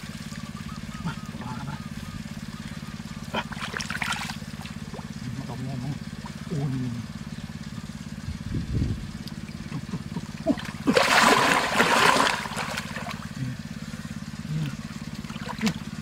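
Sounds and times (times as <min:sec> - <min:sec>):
low motor hum: 0:00.0 - 0:16.0
water splashing hard: 0:10.5 - 0:13.2.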